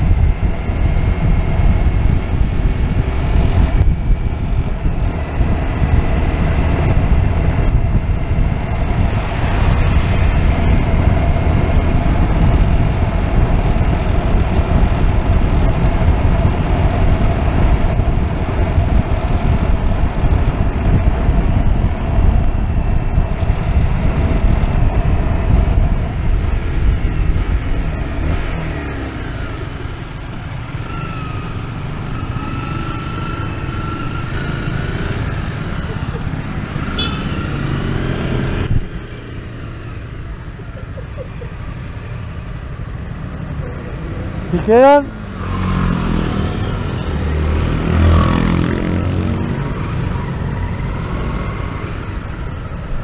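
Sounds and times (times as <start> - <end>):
wind buffeting microphone: 0.0 - 44.4, 45.2 - 53.0
motorcycle engine running: 0.0 - 45.0.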